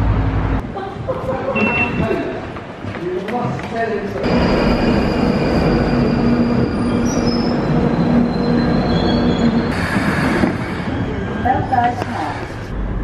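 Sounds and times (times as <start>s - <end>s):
train wheels rumbling on rail: 0.0s - 13.0s
whining tones: 4.2s - 11.6s.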